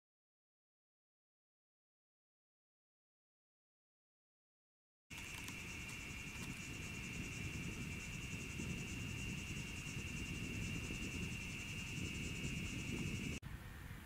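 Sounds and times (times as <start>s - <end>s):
high-pitched insect chorus: 5.1s - 13.4s.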